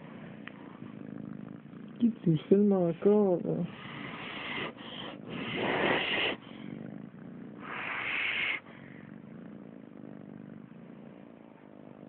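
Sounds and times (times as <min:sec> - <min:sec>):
pet breathing heavily: 0:00.0 - 0:09.2.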